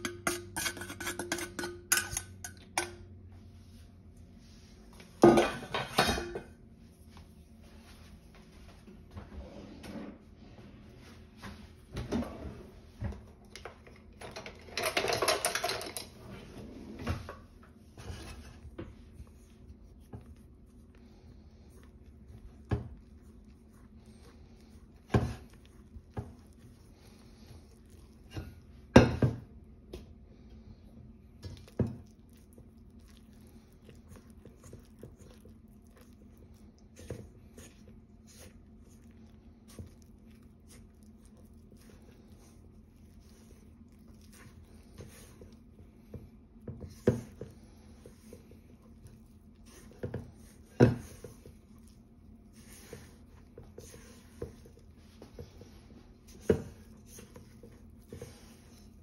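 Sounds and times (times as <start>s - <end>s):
spoon scraping metal bowl: 0.0s - 2.9s
spoon clinking against bowl: 0.0s - 3.0s.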